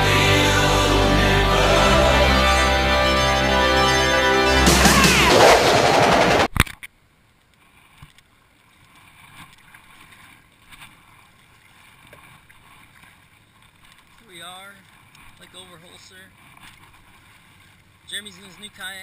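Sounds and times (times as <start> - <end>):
music: 0.0 - 6.5
kayak paddle splashing: 7.7 - 19.0.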